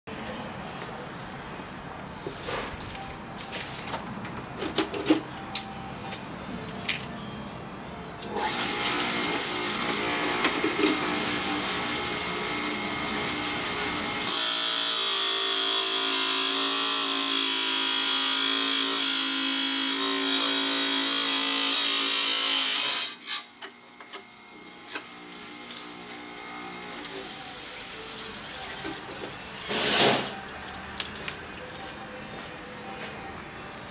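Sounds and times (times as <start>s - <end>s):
saw blade cutting circuit board: 8.4s - 24.4s
tile saw motor running: 8.4s - 27.3s.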